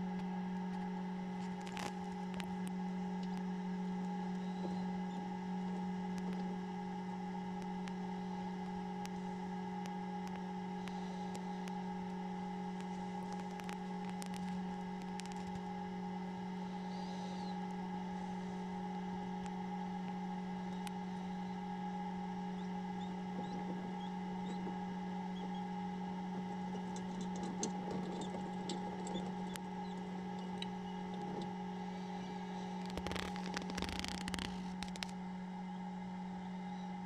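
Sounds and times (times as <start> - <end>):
incubator fan humming: 0.0 - 37.0
quail chicks peeping: 4.3 - 5.3, 22.4 - 25.7, 26.4 - 34.5.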